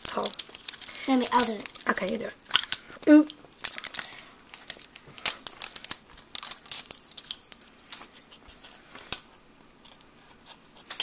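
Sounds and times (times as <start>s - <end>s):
plastic wrapper crinkling and tearing: 0.0s - 8.3s.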